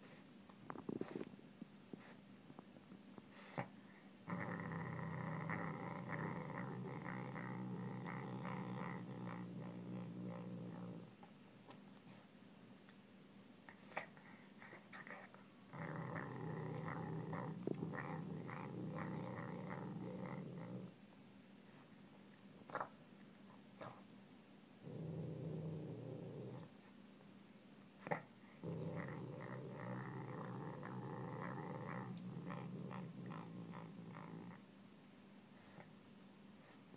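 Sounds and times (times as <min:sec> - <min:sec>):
cat growling: 0:04.3 - 0:11.2, 0:14.6 - 0:21.0, 0:24.8 - 0:26.7, 0:28.0 - 0:34.6.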